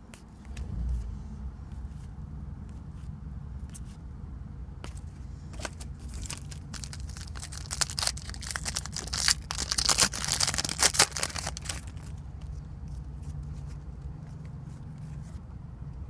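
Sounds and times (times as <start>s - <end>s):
plastic wrapper tearing and crinkling: 6.0s - 12.1s.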